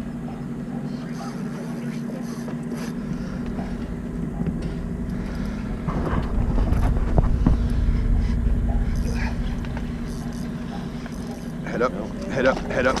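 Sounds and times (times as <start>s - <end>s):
boat motor humming: 0.0s - 13.0s
wind rumbling on microphone: 3.2s - 13.0s.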